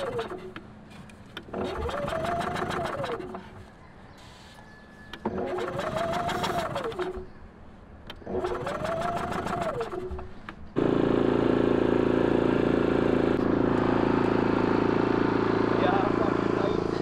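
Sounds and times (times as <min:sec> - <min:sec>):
generator engine drone: 0:00.0 - 0:03.8, 0:05.1 - 0:07.3, 0:08.0 - 0:17.0
recoil starter cord pulls: 0:00.0 - 0:03.8, 0:05.1 - 0:07.3, 0:08.1 - 0:10.6.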